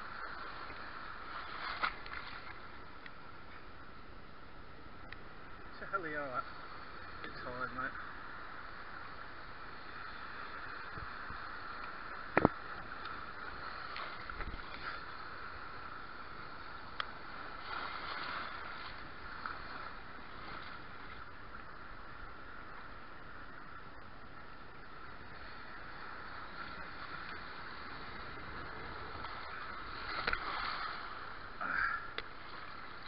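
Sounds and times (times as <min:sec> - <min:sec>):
sea water sloshing: 0:00.1 - 0:03.6, 0:10.0 - 0:22.9, 0:24.8 - 0:33.0
faint click: 0:11.7 - 0:13.2, 0:30.2 - 0:30.4, 0:32.1 - 0:32.3.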